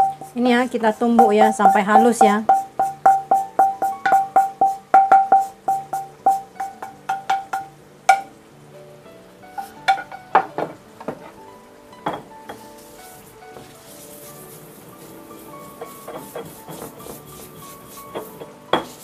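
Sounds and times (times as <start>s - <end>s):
pestle pounding in a mortar: 0.0s - 0.4s, 1.1s - 8.3s, 15.6s - 19.0s.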